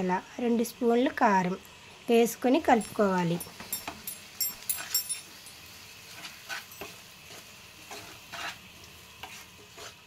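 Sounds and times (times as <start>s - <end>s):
onions sizzling in oil: 0.0s - 10.0s
wooden spatula scraping pan: 6.1s - 10.0s.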